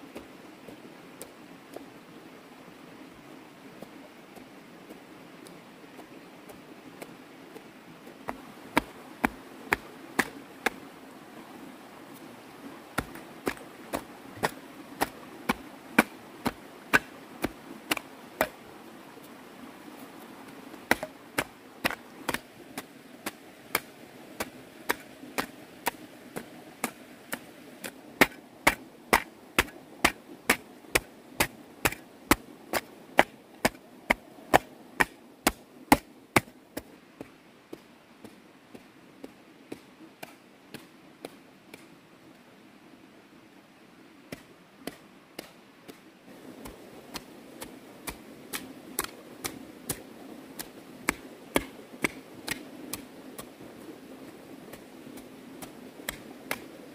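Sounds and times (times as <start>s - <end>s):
digging tool striking ground: 13.0s - 18.6s, 20.9s - 36.9s.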